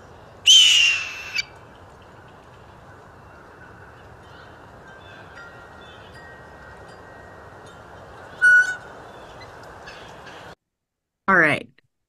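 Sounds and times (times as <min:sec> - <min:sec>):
blue jay hawk-like scream: 0:00.4 - 0:01.5
faint high bird calls: 0:00.4 - 0:01.6, 0:08.3 - 0:10.5.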